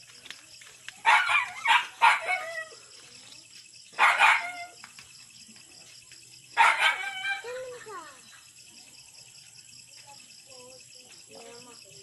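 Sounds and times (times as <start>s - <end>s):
dog barking: 1.0s - 2.8s, 4.0s - 4.8s, 6.6s - 7.4s.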